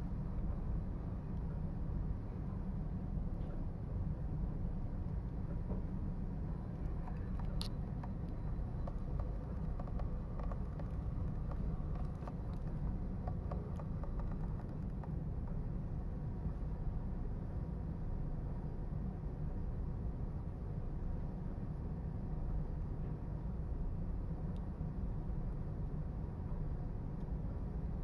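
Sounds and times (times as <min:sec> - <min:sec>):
low background rumble: 0:00.0 - 0:28.0
faint clicks and ticks: 0:06.7 - 0:15.2.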